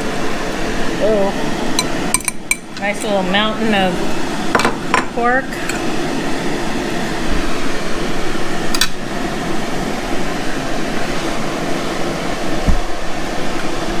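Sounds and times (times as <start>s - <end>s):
rushing air noise: 2.8s - 14.0s.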